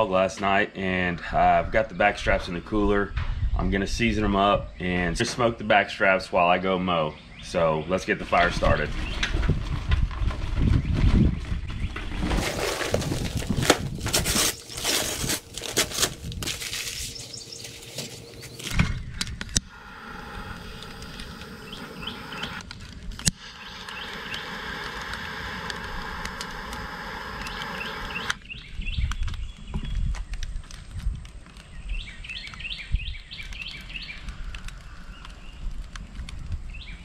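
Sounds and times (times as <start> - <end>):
birds chirping: 0.0 - 9.5, 10.4 - 13.6, 14.3 - 30.6, 31.5 - 37.0
charcoal clattering into metal: 12.2 - 17.2
torch lighter clicking: 19.3 - 28.4
torch lighter hissing: 19.6 - 28.4.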